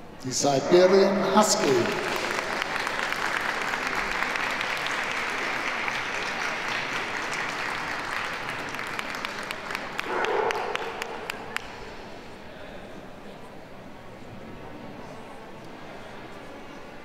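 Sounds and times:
audience applauding: 0:01.4 - 0:11.8.

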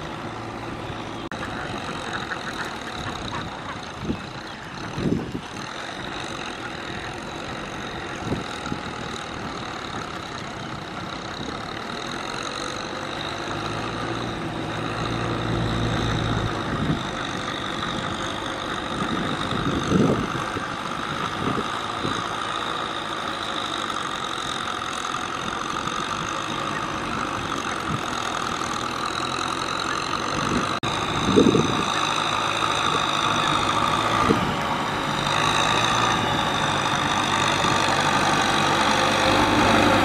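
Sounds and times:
tractor diesel engine running: 0:00.0 - 0:40.0.

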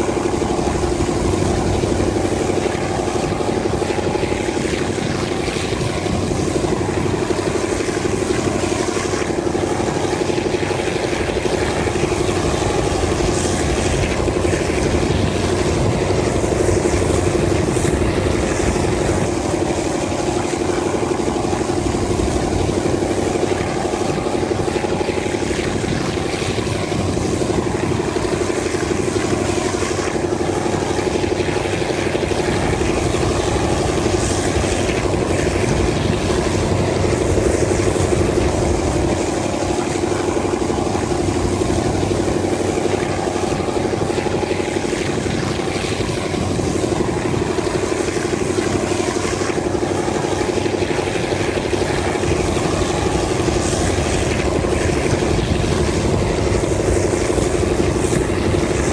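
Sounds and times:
locomotive engine droning: 0:00.0 - 0:58.9.

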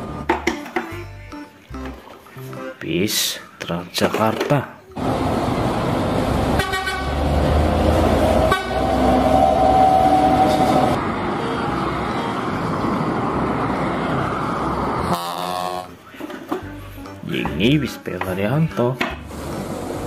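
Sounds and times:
buses driving past: 0:05.0 - 0:17.2, 0:19.2 - 0:20.0
bus horn blast: 0:06.5 - 0:07.3, 0:08.2 - 0:11.0, 0:15.0 - 0:16.0.

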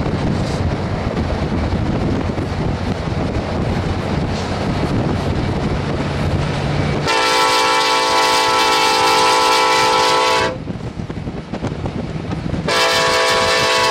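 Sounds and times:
passing train rumble: 0:00.0 - 0:13.9
wind: 0:00.0 - 0:13.9
locomotive air horn blast: 0:07.0 - 0:10.6, 0:12.6 - 0:13.9.

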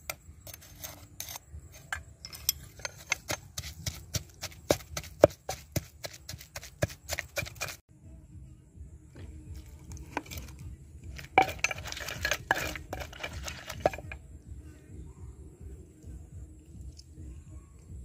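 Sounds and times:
metal spoon clinking on mortar: 0:00.5 - 0:04.4, 0:11.2 - 0:14.2
pestle pounding: 0:02.7 - 0:07.8, 0:11.1 - 0:14.2.

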